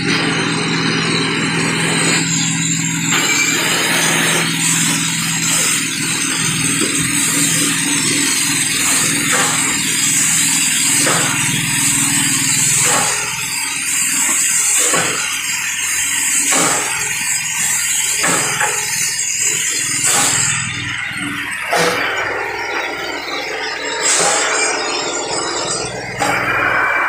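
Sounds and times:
low machine hum: 0.0s - 15.5s.

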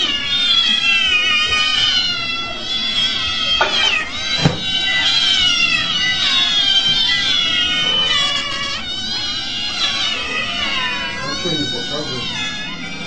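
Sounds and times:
kittens meowing: 0.0s - 13.0s.

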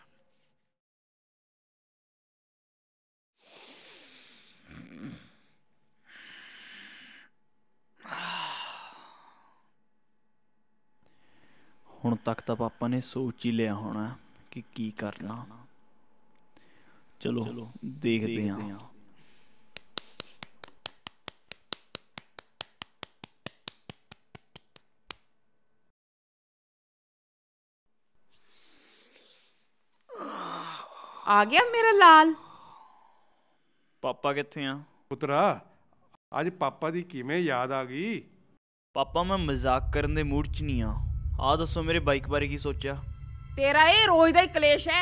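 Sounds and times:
man breathing heavily: 6.0s - 7.3s.

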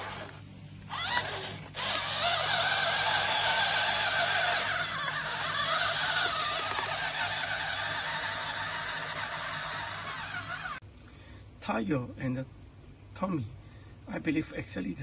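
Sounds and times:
toy car electric motor whining: 0.0s - 10.8s.

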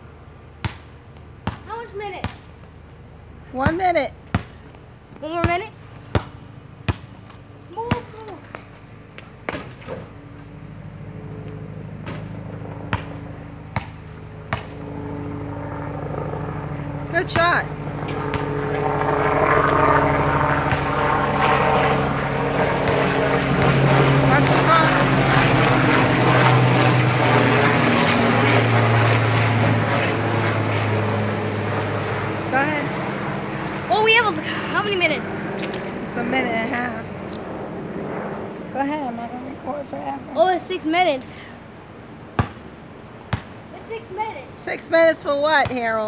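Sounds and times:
basketball bouncing on asphalt: 0.6s - 2.7s, 3.5s - 10.2s, 11.4s - 15.0s, 17.2s - 18.6s, 20.7s - 21.0s, 42.3s - 43.6s, 45.4s - 46.0s
engine hum: 2.5s - 41.0s
basketball hitting hoop: 42.4s - 42.6s.

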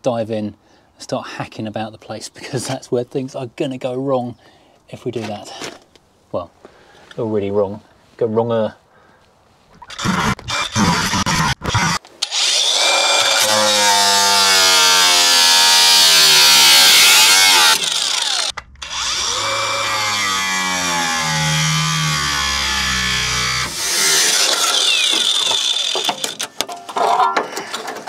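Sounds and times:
angle grinder cutting steel: 9.9s - 26.5s.

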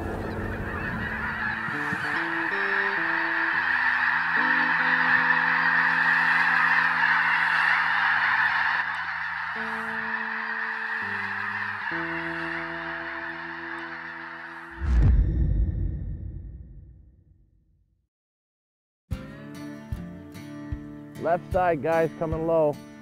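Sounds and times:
flock of geese calling: 0.0s - 14.8s, 21.2s - 23.0s
loud low boom: 14.8s - 17.3s
soft music with held notes: 19.1s - 23.0s.

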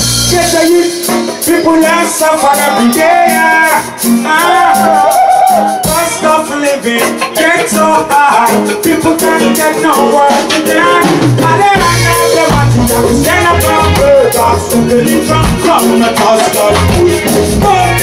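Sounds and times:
man singing into microphone: 0.0s - 18.0s
reggae band playing: 0.0s - 18.0s
ticking percussion rhythm: 0.0s - 18.0s.

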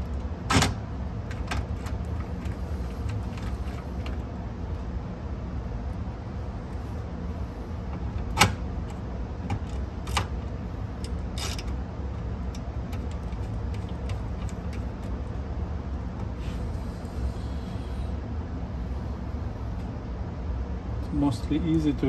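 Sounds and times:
steady low rumble: 0.0s - 22.0s
clicks and clinks of screws: 11.0s - 11.7s.

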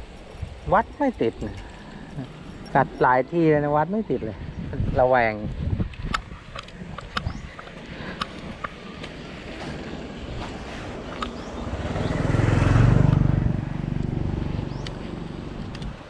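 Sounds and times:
passing vehicle engine hum: 7.2s - 16.0s.

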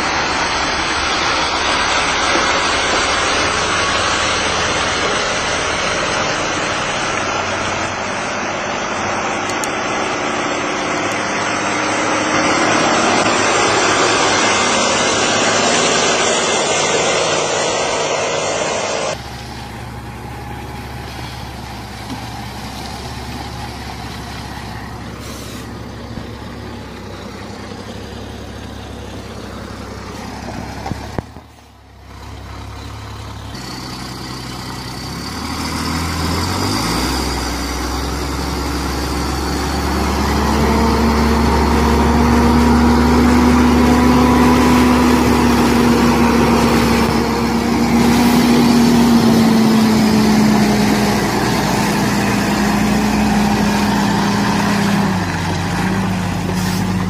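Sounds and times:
loud rushing noise: 0.0s - 19.2s, 39.5s - 57.0s
truck engine low hum: 0.0s - 57.0s.

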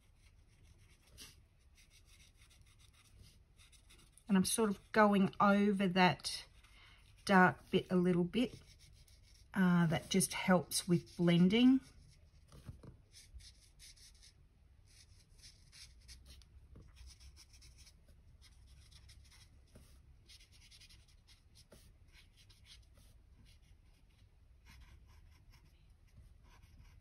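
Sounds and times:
marker scratching on paper: 0.0s - 4.9s, 6.5s - 14.3s, 14.9s - 27.0s.

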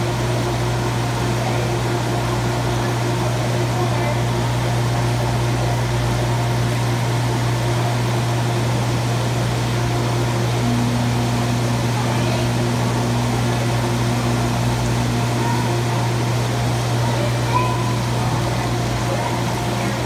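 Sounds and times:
fan machinery hum: 0.0s - 20.0s
higher steady tone: 9.2s - 20.0s.

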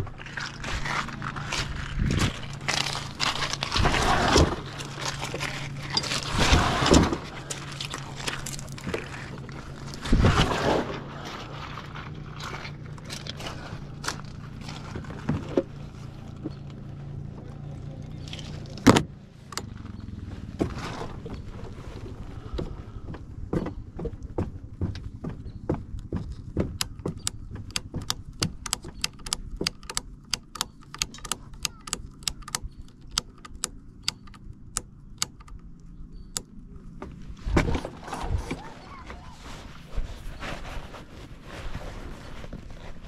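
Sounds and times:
snowmobile engine idling: 0.0s - 43.0s
sharp ticks: 26.8s - 36.5s.

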